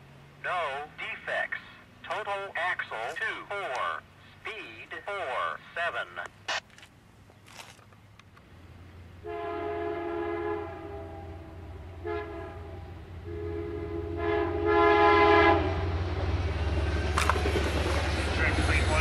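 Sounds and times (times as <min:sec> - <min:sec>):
train low rumble: 0:07.0 - 0:19.0
train air horn blasts: 0:09.2 - 0:16.0.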